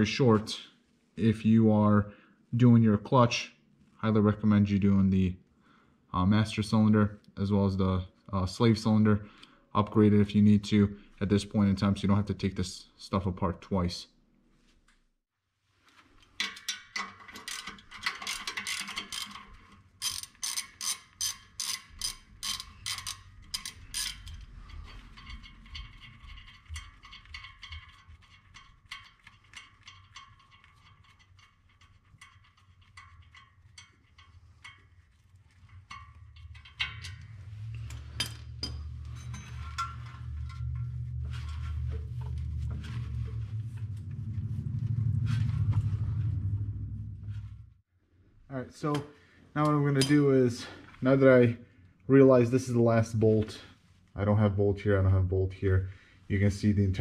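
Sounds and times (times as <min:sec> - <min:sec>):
socket ratchet clicking: 0:16.5 - 0:24.3
low rumble: 0:36.3 - 0:47.8.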